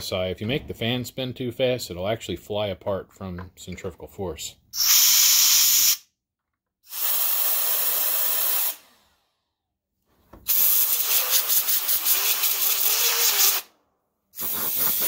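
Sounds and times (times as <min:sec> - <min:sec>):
compressed air hissing: 0:04.8 - 0:06.1, 0:06.9 - 0:09.0, 0:10.4 - 0:13.7, 0:14.3 - 0:15.0.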